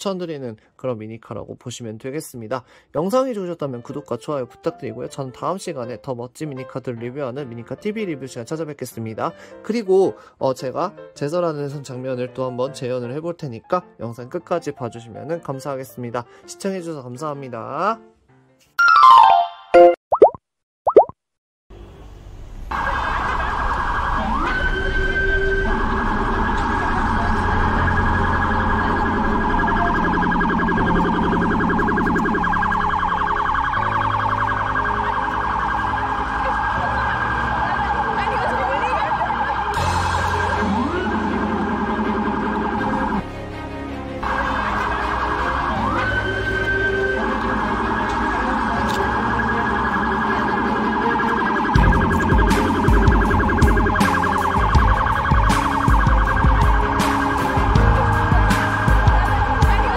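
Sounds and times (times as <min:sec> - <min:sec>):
police siren warbling: 0:22.7 - 0:43.2, 0:44.2 - 0:59.9
background music with drum beat: 0:51.8 - 0:59.9.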